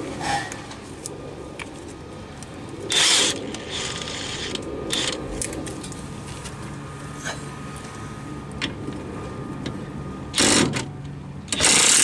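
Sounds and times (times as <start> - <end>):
impact wrench whirring: 11.5 - 12.0.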